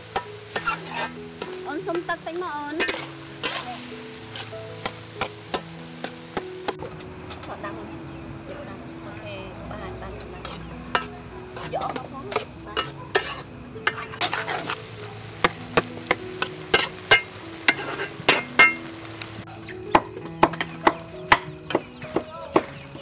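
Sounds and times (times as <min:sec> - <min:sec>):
food sizzling: 0:00.0 - 0:23.0
metal spatula scraping wok: 0:00.1 - 0:07.5, 0:10.4 - 0:19.0.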